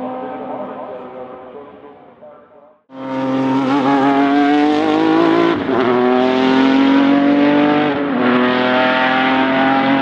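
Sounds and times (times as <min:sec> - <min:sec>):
racing car engine accelerating: 0:03.0 - 0:10.0.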